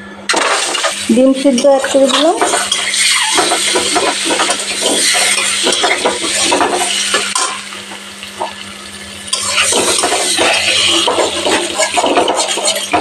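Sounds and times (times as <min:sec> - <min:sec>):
oil sizzling: 0:00.3 - 0:13.0
metal spatula scraping pan: 0:01.9 - 0:07.4, 0:09.3 - 0:13.0.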